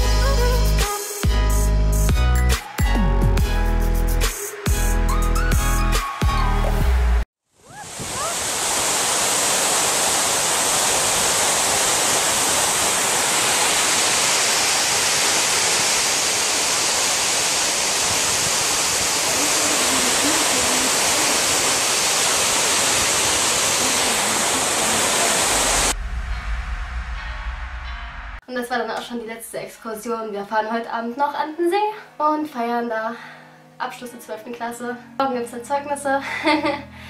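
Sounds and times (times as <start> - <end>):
water rushing down: 7.6 - 26.1.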